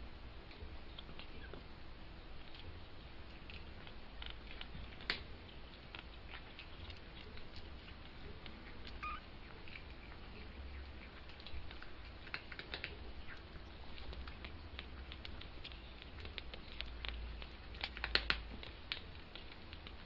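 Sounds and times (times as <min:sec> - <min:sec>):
kittens scratching on blanket: 0:00.6 - 0:20.0
kitten squeak: 0:09.0 - 0:09.3.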